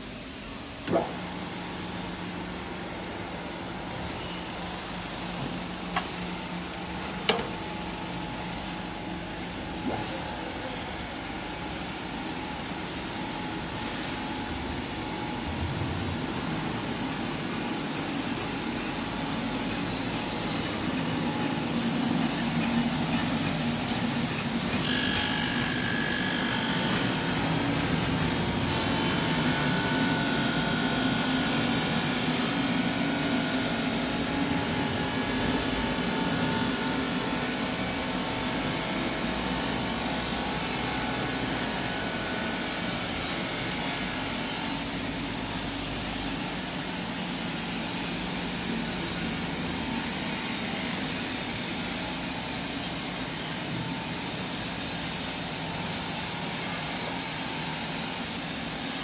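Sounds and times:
glass edging machine humming: 19.8 - 31.2.

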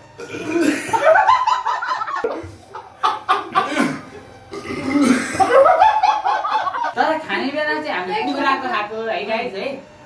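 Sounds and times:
group of people laughing: 0.9 - 4.0.

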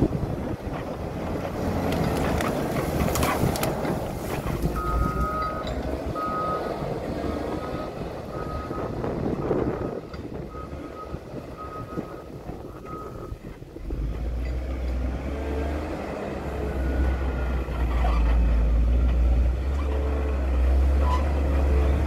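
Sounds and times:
diesel engine running: 0.0 - 22.0
crackling and knocks: 0.7 - 5.9
reversing alarm beeping: 4.8 - 6.7.

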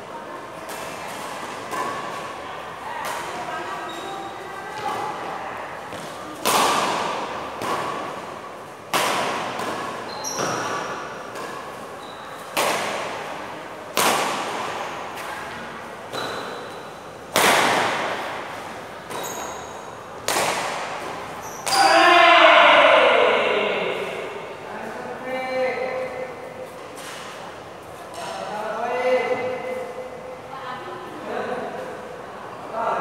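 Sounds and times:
rackets hitting shuttlecock: 0.6 - 2.4, 5.9 - 13.3, 13.9 - 22.0.

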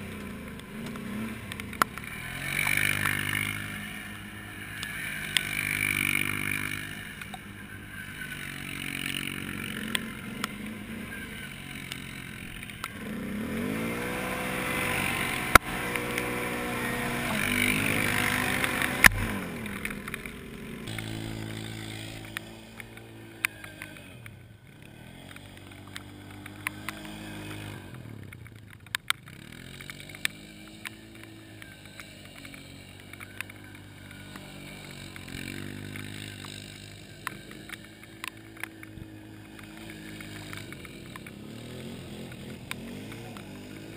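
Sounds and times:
quad engine revving: 0.0 - 43.9
second quad revving in mud: 0.0 - 43.9
sharp clicks: 11.4 - 13.8, 14.7 - 43.9.

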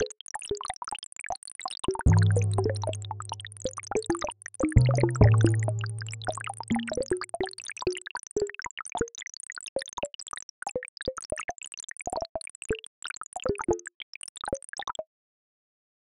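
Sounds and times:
low held tone: 2.1 - 4.1, 4.7 - 7.1
short synthesized plops: 2.1 - 7.2.

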